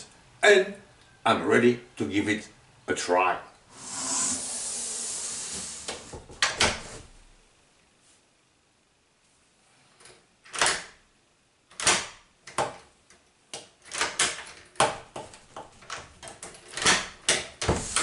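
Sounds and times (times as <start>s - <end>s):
door lock clacking and clicking: 10.5s - 11.0s, 11.7s - 12.8s, 13.6s - 18.0s.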